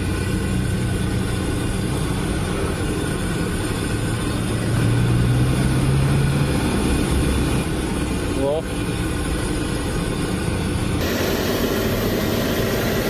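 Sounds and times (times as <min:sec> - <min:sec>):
deep-frying oil hissing: 0:00.0 - 0:13.0
street traffic: 0:00.0 - 0:13.0
vehicle passing close by: 0:04.4 - 0:07.9.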